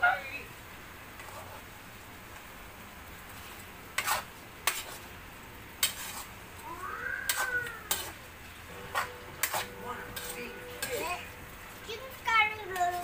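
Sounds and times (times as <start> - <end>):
faint sizzle: 0.0 - 13.0
metal spatula scraping frying pan: 3.4 - 5.0, 5.8 - 6.4, 7.3 - 12.0.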